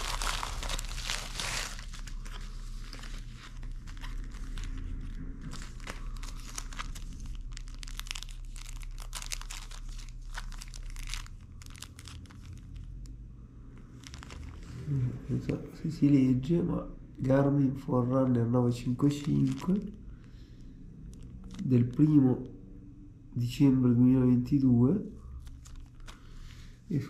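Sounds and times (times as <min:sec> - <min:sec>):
plastic packaging crinkling: 0:00.0 - 0:15.0, 0:18.8 - 0:20.2, 0:21.1 - 0:22.2, 0:25.3 - 0:26.5.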